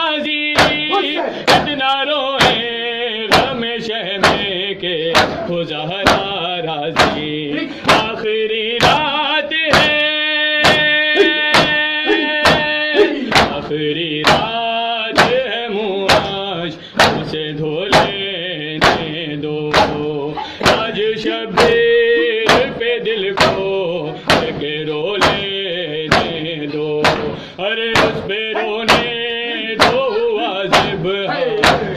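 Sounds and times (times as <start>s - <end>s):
voices chanting a lament: 0.0s - 31.9s
hands striking chest: 0.6s - 0.8s, 5.1s - 6.3s, 7.0s - 7.2s, 7.8s - 8.1s, 12.4s - 13.6s, 16.1s - 16.4s, 17.0s - 17.2s, 18.8s - 19.1s, 19.7s - 20.0s, 20.6s - 20.9s, 23.4s - 23.6s, 24.3s - 24.6s, 26.1s - 26.4s, 28.0s - 28.2s, 31.6s - 31.9s.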